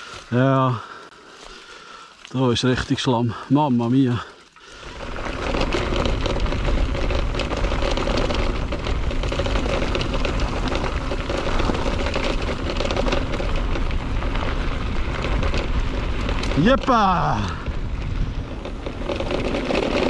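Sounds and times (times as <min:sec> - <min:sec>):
bike rattling and crackling: 0:00.0 - 0:20.0
bike tyres in mud: 0:00.0 - 0:20.0
wind rumble on microphone: 0:04.9 - 0:20.0.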